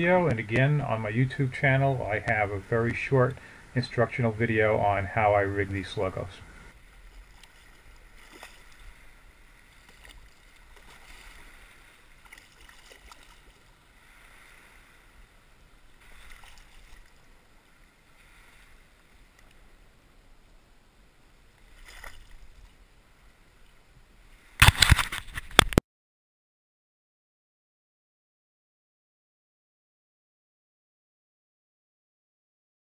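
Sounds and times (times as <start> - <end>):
water sloshing and lapping: 0.0 - 25.6
fish splash: 7.3 - 8.9, 9.8 - 13.7, 16.1 - 17.2, 21.7 - 22.4.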